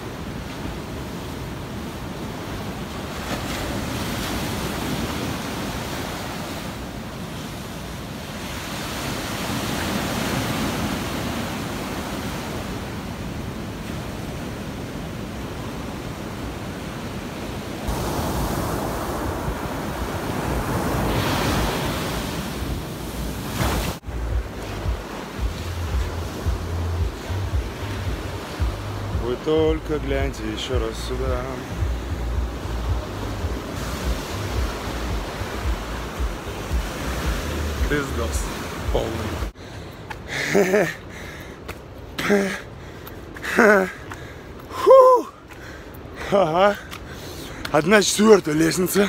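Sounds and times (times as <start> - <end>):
ocean surf breaking on beach: 0.0 - 49.0
wind buffeting microphone: 17.8 - 40.2.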